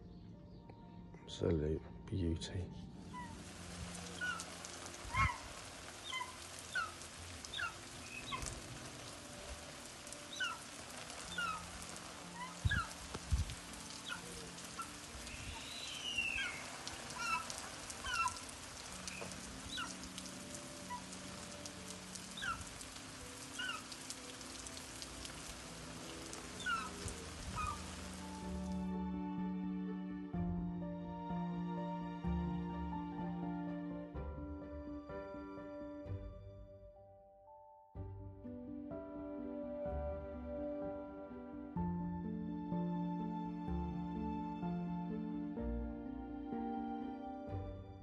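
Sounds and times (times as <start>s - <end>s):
water spraying: 3.1s - 28.8s
short falling bird chirps: 14.1s - 18.4s.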